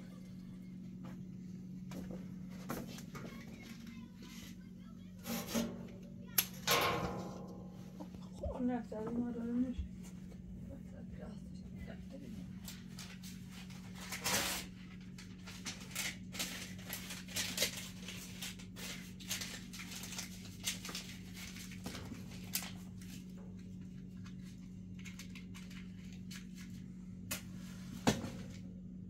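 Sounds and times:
steady low hum: 0.0 - 29.0
paper rustling: 12.5 - 26.9.

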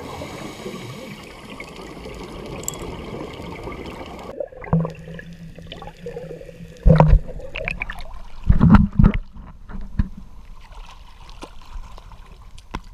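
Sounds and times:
water clicks: 1.6 - 6.2, 12.5 - 12.9
seawater sloshing and splashing: 10.6 - 12.9.

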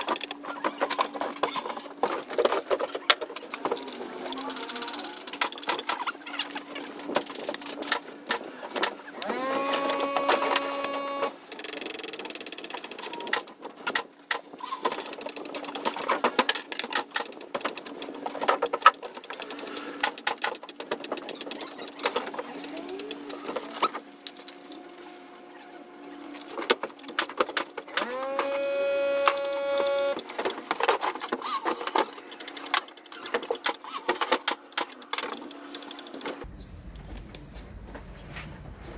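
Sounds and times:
small electric motor whirring: 9.0 - 13.3, 27.9 - 30.3
tools clicking and tapping: 11.5 - 23.9, 30.2 - 36.5.

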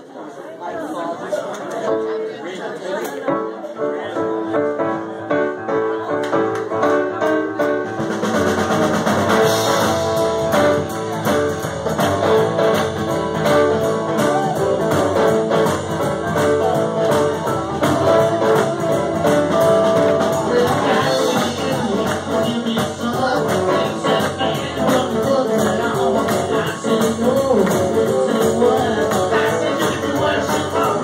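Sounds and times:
blues-rock band playing: 4.3 - 31.0
deep bass: 7.8 - 31.0.

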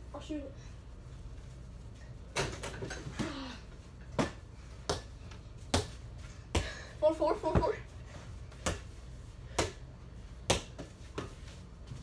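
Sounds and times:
basketball bouncing on indoor floor: 4.1 - 6.8.

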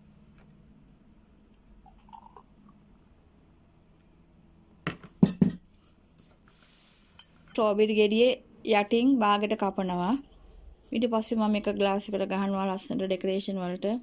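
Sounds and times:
glasses clinking on glass table: 5.2 - 5.6.

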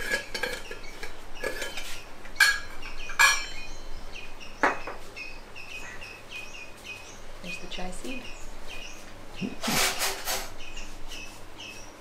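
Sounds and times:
steel kitchenware clinking: 0.0 - 3.7
bird chirps: 0.1 - 12.0
metal scraping: 9.5 - 10.6.

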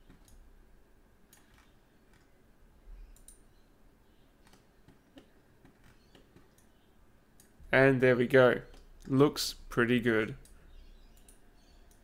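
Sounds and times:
computer mouse clicks: 1.3 - 2.3, 3.1 - 3.4, 4.4 - 6.8, 7.4 - 7.6, 10.4 - 12.0.

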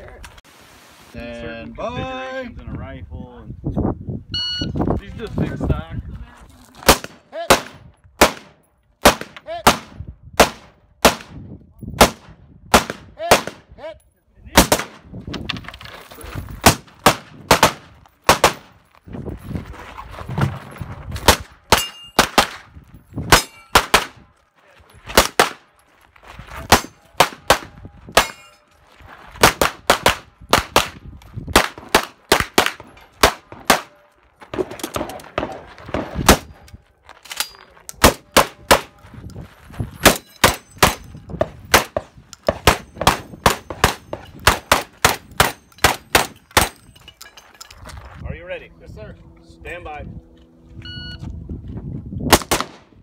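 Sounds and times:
metallic ringing of steel targets: 21.7 - 22.2, 23.3 - 23.8, 28.2 - 28.8.

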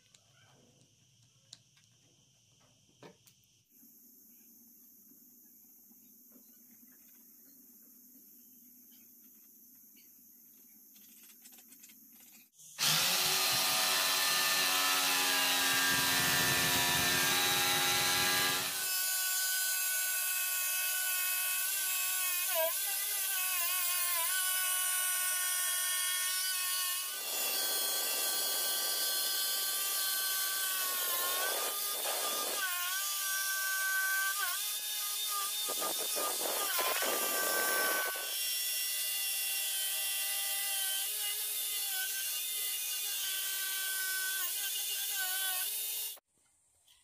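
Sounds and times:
jigsaw cutting plywood: 12.8 - 46.2.

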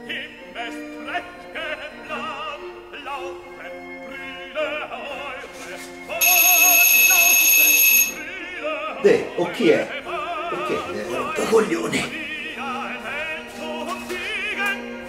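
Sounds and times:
operatic singing: 0.0 - 15.0
electric doorbell buzzer: 6.2 - 8.3.

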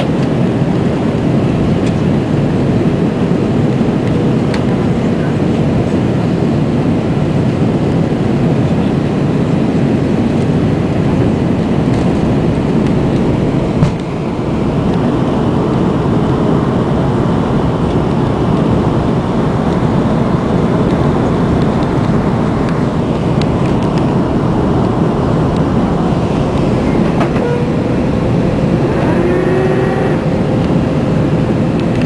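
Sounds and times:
airflow rush in aircraft cabin: 0.0 - 32.0
jet engines: 0.0 - 32.0
steady hum: 10.5 - 32.0
short rising whine: 25.8 - 31.3.

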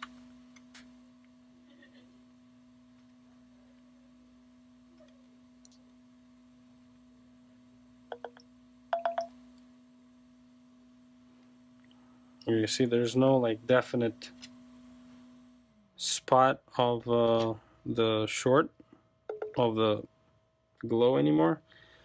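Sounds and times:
faint electrical hum: 0.0 - 22.0.

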